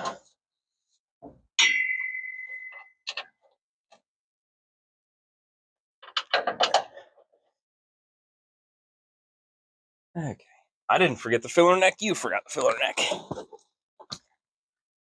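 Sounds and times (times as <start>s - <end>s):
metal clang ringing: 1.6s - 2.8s.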